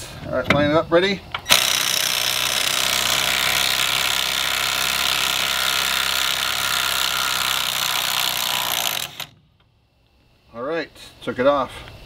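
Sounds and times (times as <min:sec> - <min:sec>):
impact wrench hammering: 0:01.5 - 0:09.4.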